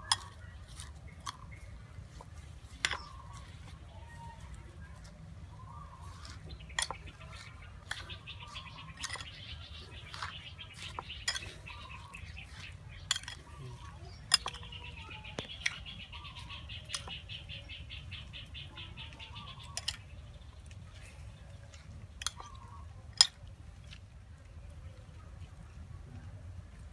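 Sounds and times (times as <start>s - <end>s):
spoon clinking against ceramic bowl: 8.9s - 9.4s, 13.0s - 13.4s.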